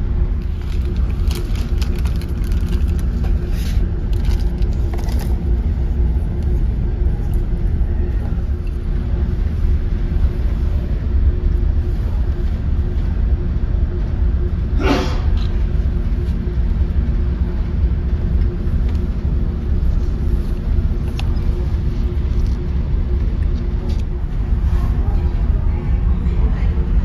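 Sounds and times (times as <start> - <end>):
ship engines droning: 0.0 - 27.0
crackles and clicks: 0.4 - 5.6.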